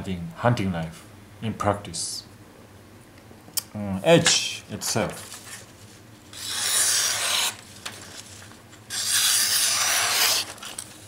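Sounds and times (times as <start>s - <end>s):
knife slicing through paper: 6.3s - 10.8s.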